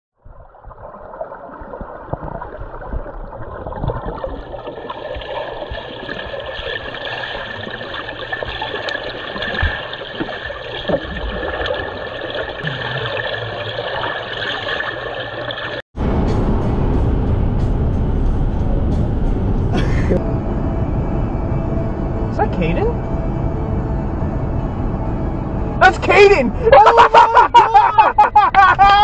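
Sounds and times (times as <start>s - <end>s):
underwater rush and bubbling: 0.2s - 17.4s
dull knocks underwater: 0.3s - 6.7s
steady high tone: 16.0s - 27.9s.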